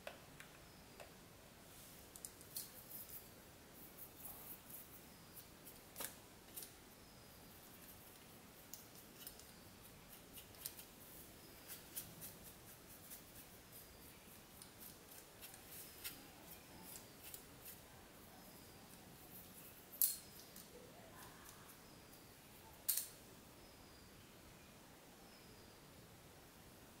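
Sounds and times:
paintbrush scratching fan blades: 0:07.6 - 0:19.9.

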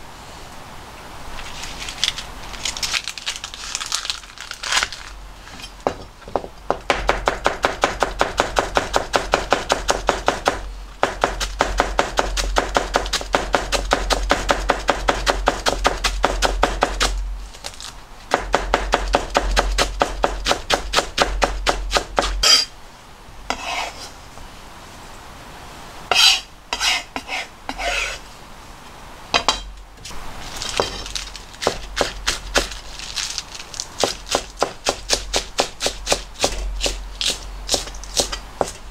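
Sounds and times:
scattered knocks and handling: 0:01.4 - 0:06.9, 0:29.4 - 0:34.2
knife chopping on cutting board: 0:34.0 - 0:38.8.

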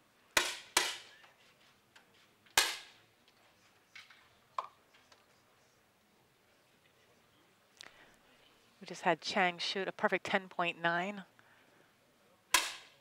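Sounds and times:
air rifle shots: 0:12.5 - 0:13.0.

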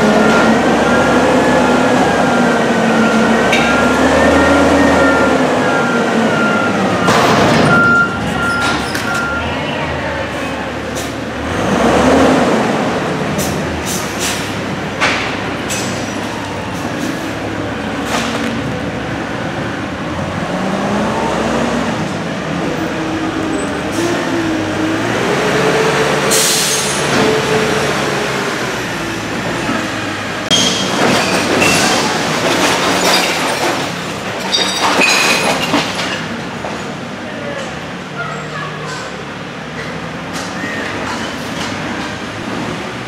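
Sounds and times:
garbage truck running: 0:00.0 - 0:43.0
metal clanks and rattles: 0:30.5 - 0:36.9.

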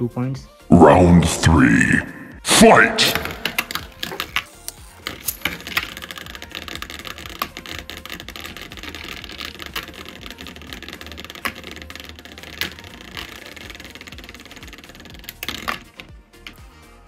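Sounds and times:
spinning tops knocking: 0:03.2 - 0:16.0
spinning tops rattling in plastic tray: 0:03.5 - 0:16.7.

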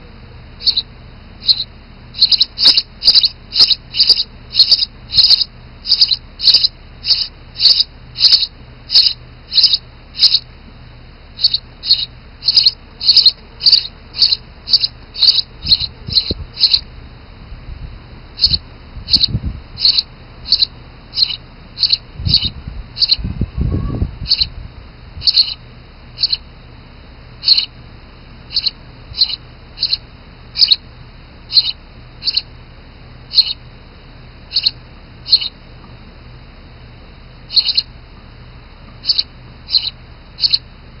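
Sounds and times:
nestlings cheeping: 0:00.0 - 0:17.2, 0:18.1 - 0:41.0
low rumble: 0:21.8 - 0:25.6.

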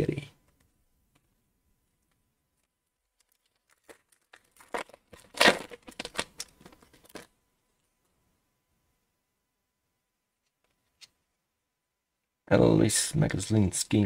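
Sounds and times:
foil wrapper tearing and crinkling: 0:03.1 - 0:07.3.

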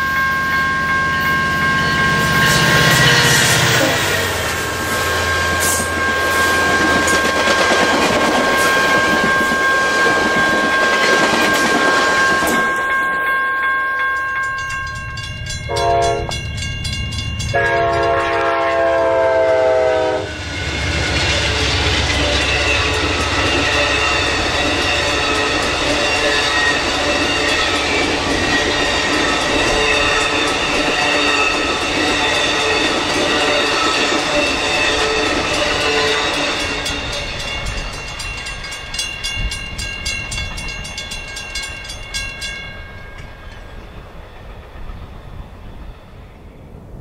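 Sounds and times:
train coaches rolling past: 0:00.0 - 0:47.0
train horn blasts: 0:01.7 - 0:07.2, 0:15.7 - 0:16.4, 0:17.5 - 0:20.4
train wheel clatter: 0:02.2 - 0:13.3, 0:20.4 - 0:45.8.

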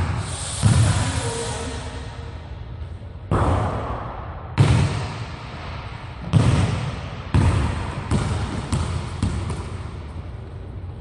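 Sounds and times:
basketball bouncing on hardwood floor: 0:06.3 - 0:09.9.

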